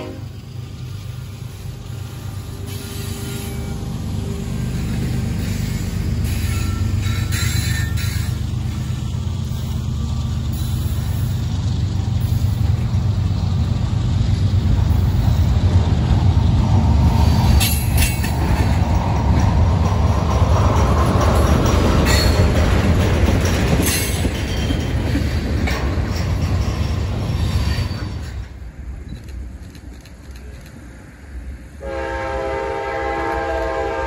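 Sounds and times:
steel wheels rumbling on rail: 0.0 - 34.0
high-pitched metal squeals: 2.6 - 4.0, 5.4 - 8.4.

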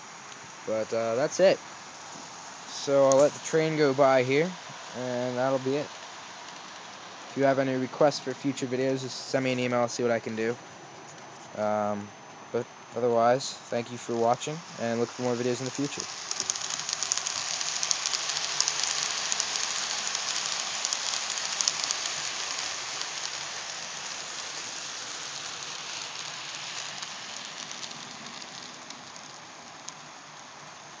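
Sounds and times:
model train wheels rattling on rails: 2.7 - 9.7, 13.8 - 31.0.

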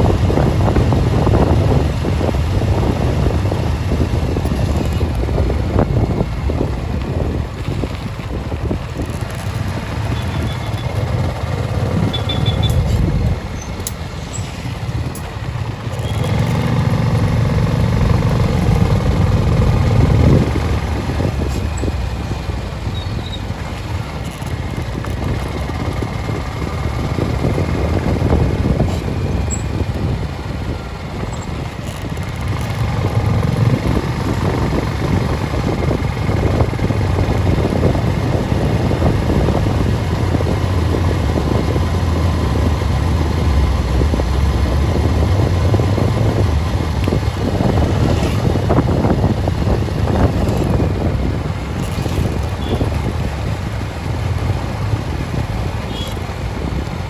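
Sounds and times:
vehicle engine and road rumble: 0.0 - 57.0
rough rushing noise: 42.6 - 57.0.

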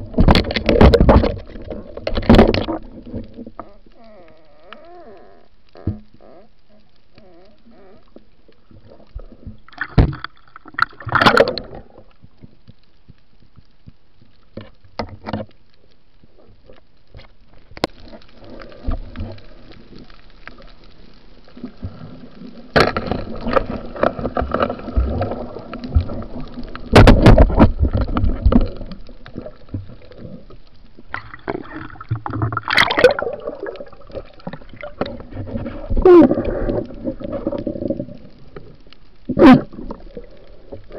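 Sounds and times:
water gurgling and rushing: 0.0 - 3.8, 8.6 - 12.1, 21.5 - 40.9.

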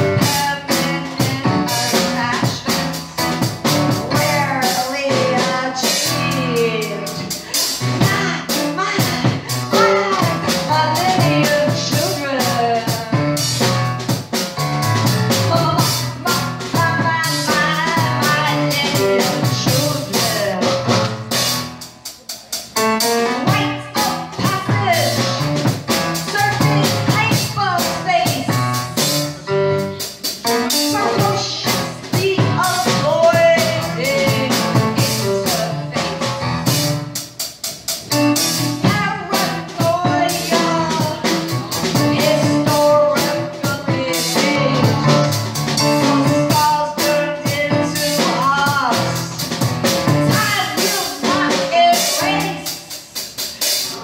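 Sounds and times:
drum kit with cymbals: 0.0 - 54.0
piano accompaniment: 0.0 - 54.0
woman vocalizing: 6.2 - 10.4.

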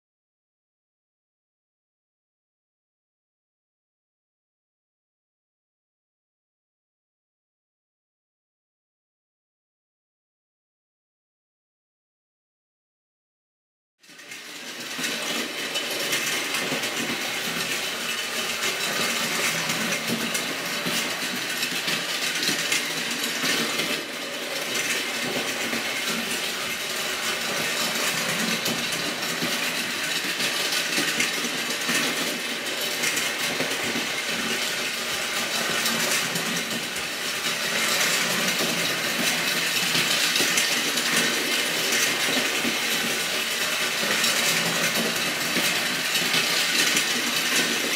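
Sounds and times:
toy train motor whirring: 14.0 - 47.9
wheels rattling over rails: 14.0 - 47.9.

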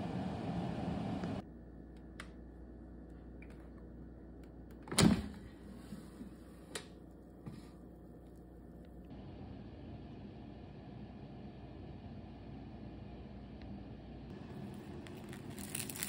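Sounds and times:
air fryer fan running: 0.0 - 7.7.

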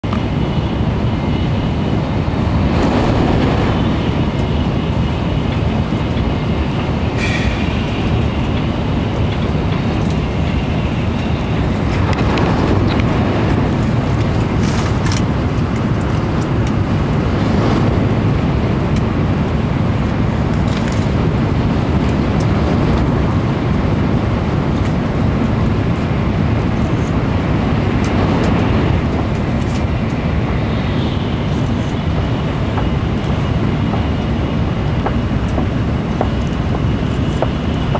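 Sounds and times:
train rumble inside cabin: 0.0 - 37.9
sharp hisses: 7.2 - 7.8.

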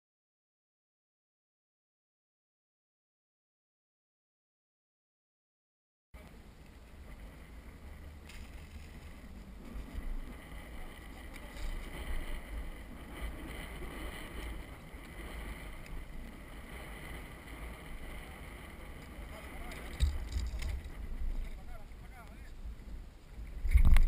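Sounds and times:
wind rumble on microphone: 6.2 - 24.0
faint clicks and knocks: 19.0 - 22.5.

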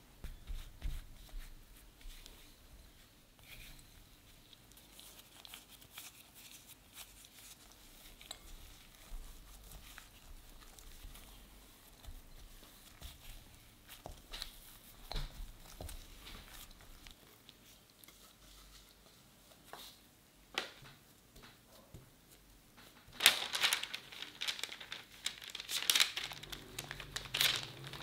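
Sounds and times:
crumbly dough rustling: 0.1 - 28.0
small clicks and crinkles: 3.4 - 18.4, 22.7 - 28.0.

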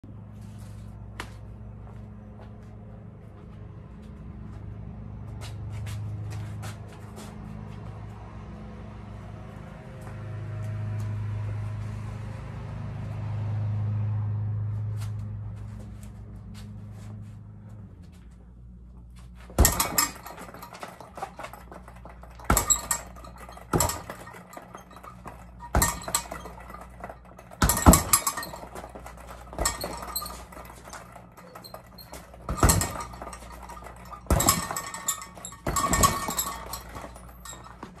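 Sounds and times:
fists punching a bag: 19.6 - 38.0.

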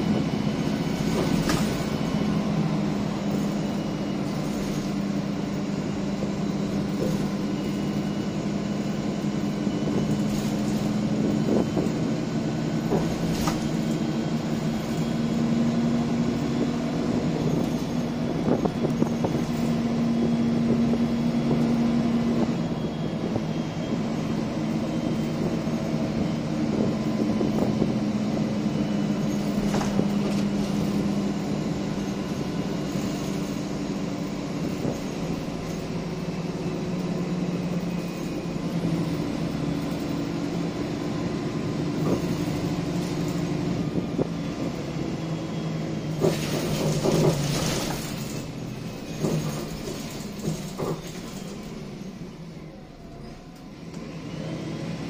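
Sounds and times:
bus diesel engine pulling: 0.0 - 55.0.

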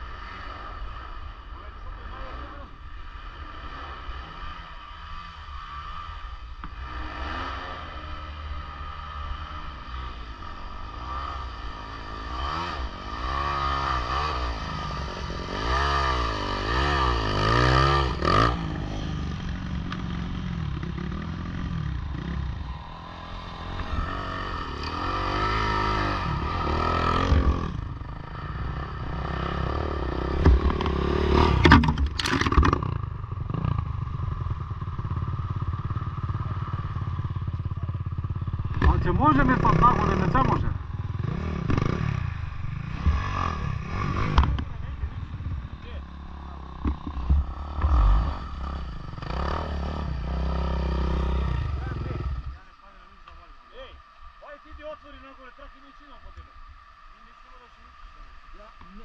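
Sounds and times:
dirt bike engine revving: 0.0 - 56.4
sharp knocks and clatter: 30.4 - 33.0.

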